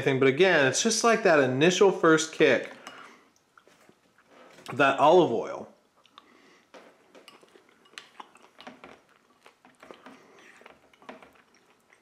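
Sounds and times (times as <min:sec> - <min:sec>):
spoon stirring in bowl: 0:02.6 - 0:04.6, 0:06.8 - 0:12.0.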